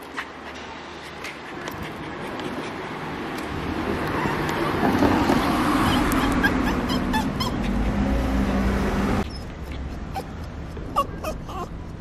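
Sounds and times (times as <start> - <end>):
dog whining and whimpering: 5.4 - 8.6, 9.2 - 12.0.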